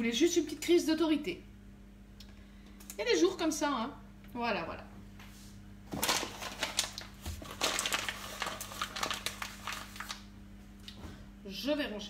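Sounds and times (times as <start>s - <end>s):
packaging crinkling and rustling: 5.9s - 10.3s.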